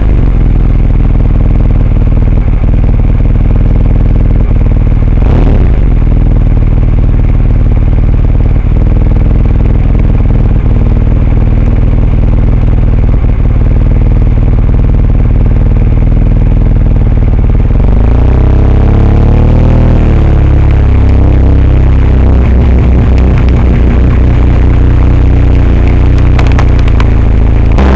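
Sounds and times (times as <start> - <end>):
car engine and road noise: 0.0 - 27.9
rising pitched sound: 19.7 - 27.9.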